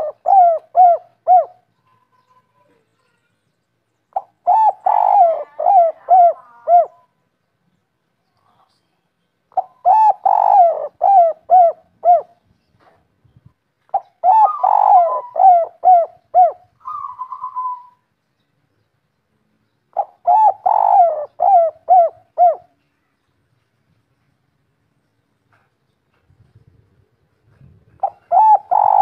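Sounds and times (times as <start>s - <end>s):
dove cooing: 0.0s - 2.0s, 4.1s - 7.1s, 9.5s - 12.4s, 13.9s - 18.0s, 19.9s - 22.8s, 27.5s - 29.0s.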